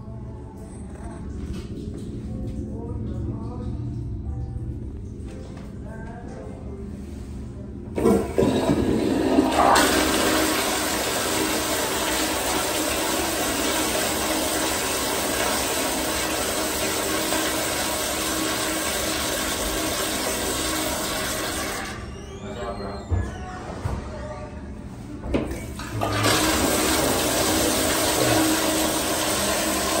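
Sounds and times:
toilet flushing: 0:08.0 - 0:24.0, 0:25.5 - 0:30.0.

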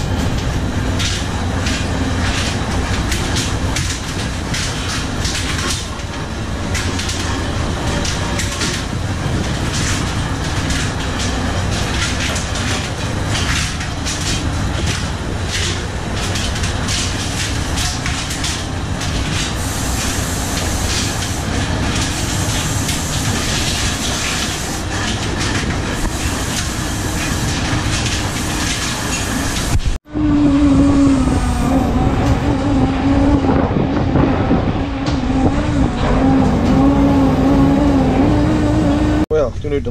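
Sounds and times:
rattling clatter: 0:00.0 - 0:30.0
wind: 0:00.0 - 0:39.9
boat engine drone: 0:29.8 - 0:39.3.

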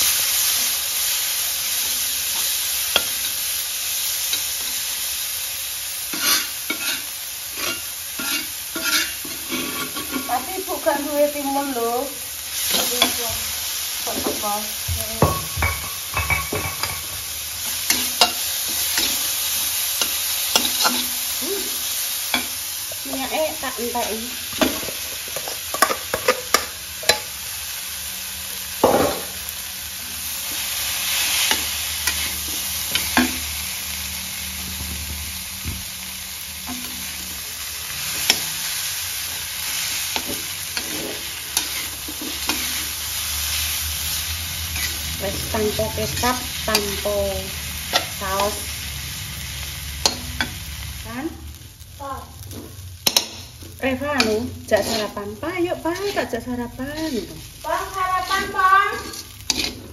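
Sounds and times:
frying sizzle: 0:00.0 - 0:59.9
metal spatula scraping a wok: 0:06.0 - 0:11.1, 0:15.6 - 0:27.3, 0:30.0 - 0:33.8, 0:36.6 - 0:50.8, 0:52.5 - 0:59.9.

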